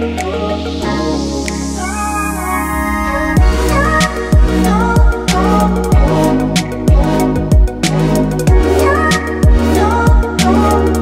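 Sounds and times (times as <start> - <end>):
background music with a beat: 0.0 - 11.0
sustained chords: 0.0 - 11.0
deep kick drum: 3.4 - 6.2, 6.9 - 7.8, 8.5 - 8.7, 9.4 - 10.3.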